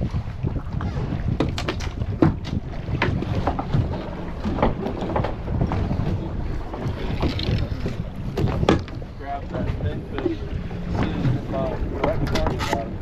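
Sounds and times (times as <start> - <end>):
sea water slapping boat hull: 0.0 - 13.0
wind buffeting microphone: 0.0 - 13.0.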